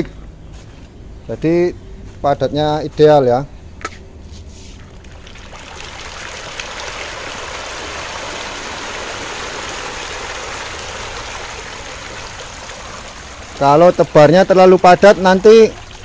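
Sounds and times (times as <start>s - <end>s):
fish thrashing and splashing: 4.8s - 13.6s.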